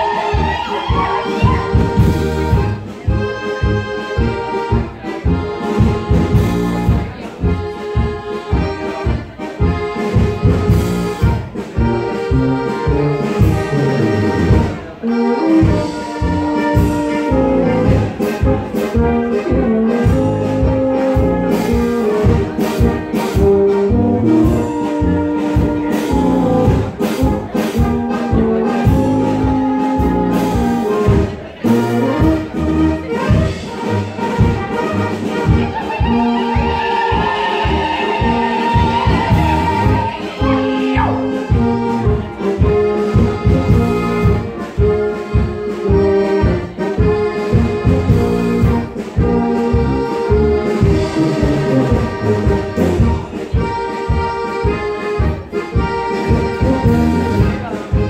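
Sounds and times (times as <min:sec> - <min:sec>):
brass band playing dance tune: 0:00.0 - 0:58.0.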